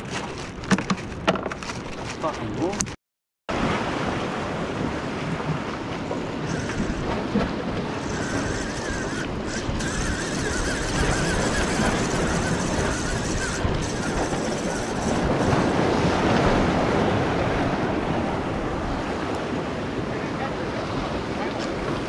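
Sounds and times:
wind buffeting microphone: 0:04.8 - 0:22.0.

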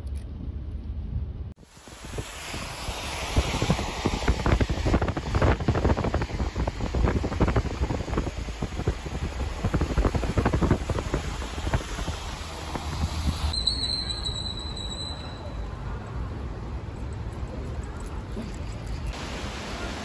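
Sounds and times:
road noise: 0:00.0 - 0:20.0
wind buffeting microphone: 0:01.1 - 0:13.6.

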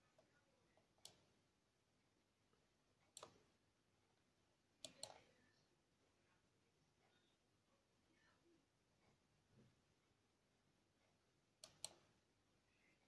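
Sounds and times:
computer mouse clicks: 0:01.0 - 0:01.3, 0:03.1 - 0:03.5, 0:04.8 - 0:05.3, 0:11.6 - 0:12.2.

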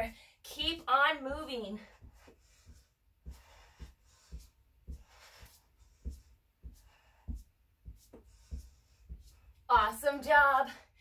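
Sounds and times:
feet thudding on yoga mat: 0:01.2 - 0:10.6.

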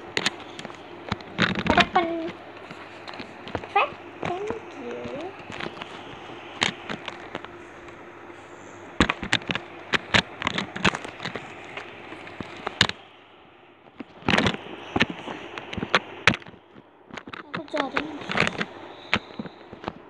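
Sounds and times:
clicks and knocks of handled objects: 0:00.0 - 0:08.0, 0:09.0 - 0:13.0, 0:13.9 - 0:20.0.

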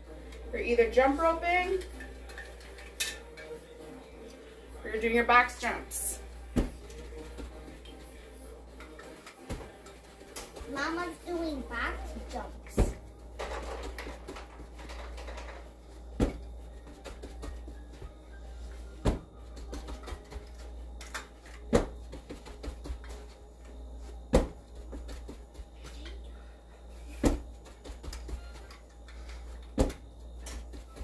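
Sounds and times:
feet thudding on carpeted floor: 0:06.5 - 0:07.8, 0:16.1 - 0:20.7, 0:21.7 - 0:23.4, 0:24.0 - 0:26.0, 0:27.1 - 0:28.6.

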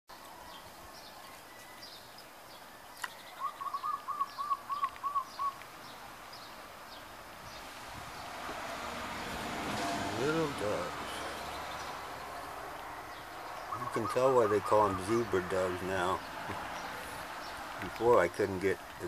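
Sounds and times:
dove cooing: 0:03.4 - 0:05.6, 0:10.0 - 0:18.0.

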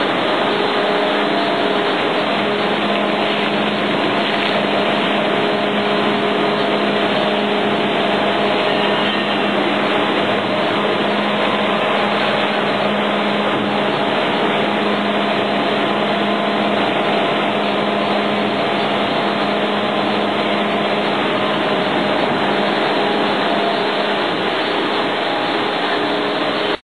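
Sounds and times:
machine running: 0:00.0 - 0:26.8.

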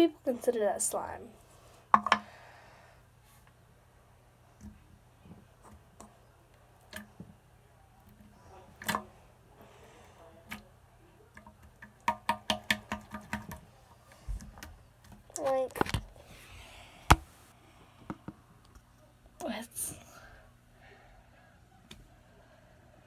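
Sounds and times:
plastic cup clicks and taps: 0:01.9 - 0:02.3, 0:11.4 - 0:13.6.

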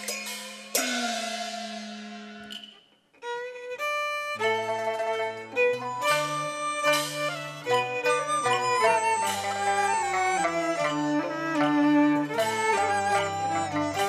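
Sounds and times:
percussion crash: 0:00.0 - 0:03.1, 0:06.0 - 0:14.0
violin-led melody over bass line: 0:03.3 - 0:14.0.

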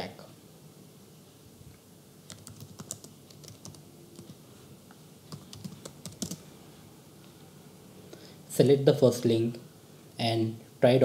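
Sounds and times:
typing on keyboard: 0:02.3 - 0:04.3, 0:05.3 - 0:06.4.

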